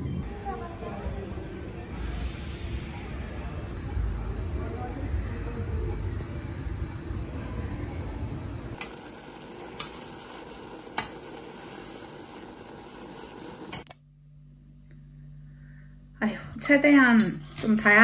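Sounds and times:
faint room hum: 3.8s - 18.0s.

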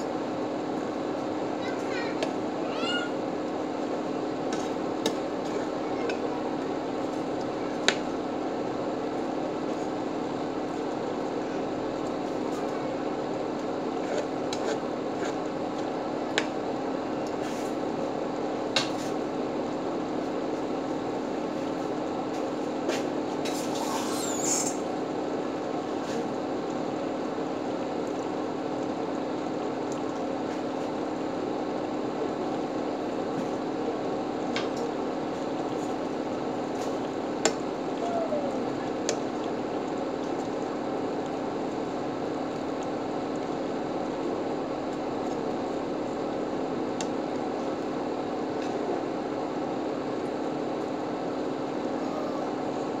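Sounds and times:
high squeak: 23.8s - 24.7s
fish simmering in sauce: 38.6s - 51.7s.

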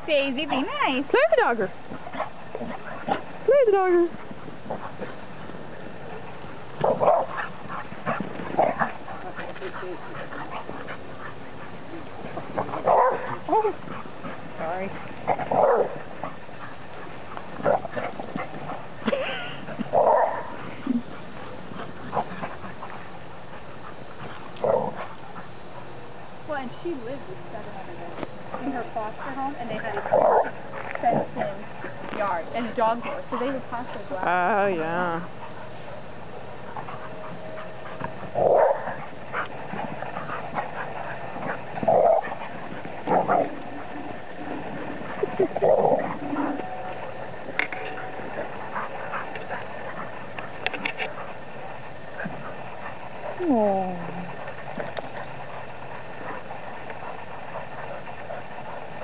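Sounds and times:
dogs growling play barks: 0.6s - 26.4s, 28.4s - 34.5s, 35.1s - 59.0s
dog barking: 12.8s - 13.7s, 15.5s - 16.0s, 20.0s - 20.5s.

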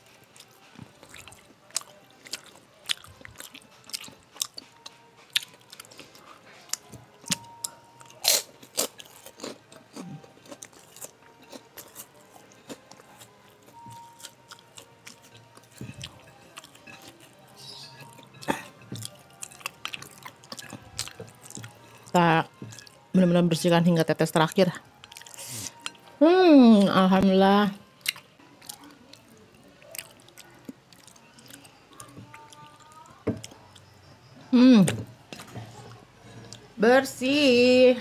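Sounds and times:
person chewing and lip smacking: 0.4s - 21.8s, 25.0s - 26.0s, 28.0s - 34.0s.

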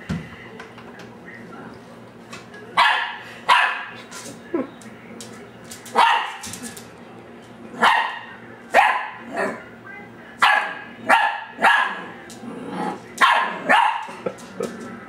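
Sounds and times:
puppy barking: 2.8s - 4.0s, 6.0s - 6.5s, 7.8s - 9.2s, 10.4s - 12.2s, 13.2s - 14.2s.

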